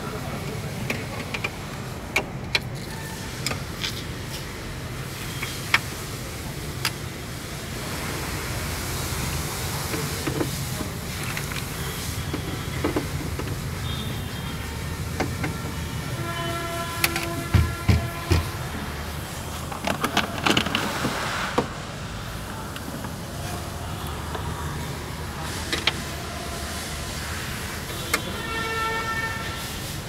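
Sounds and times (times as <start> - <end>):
clicks and knocks on car door: 17.1 - 18.5.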